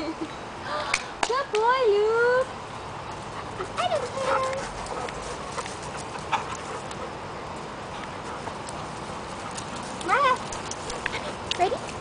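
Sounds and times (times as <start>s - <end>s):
dog paws scuffling on dirt: 3.4s - 12.0s.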